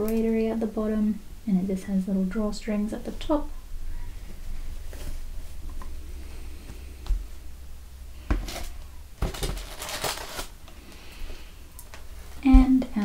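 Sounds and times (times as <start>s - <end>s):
tissue paper and cloth rustling: 8.5s - 10.6s.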